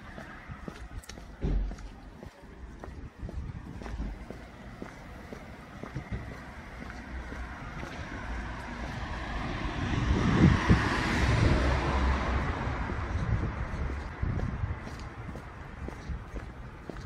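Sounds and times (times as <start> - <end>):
vehicle driving past: 4.4 - 14.8.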